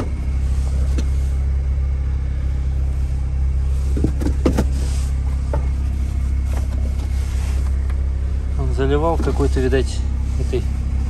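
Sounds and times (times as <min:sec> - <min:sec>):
diesel engine idling: 0:00.0 - 0:11.0
rustles and knocks: 0:03.8 - 0:08.0.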